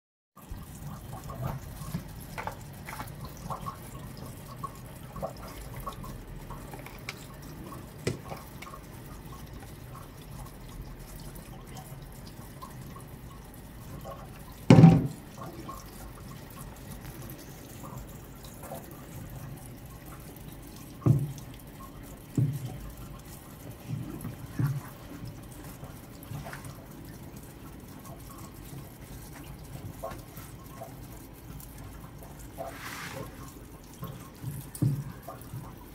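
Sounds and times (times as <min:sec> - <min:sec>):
water dripping and splashing: 0:00.4 - 0:35.9
knocks: 0:14.7 - 0:15.2.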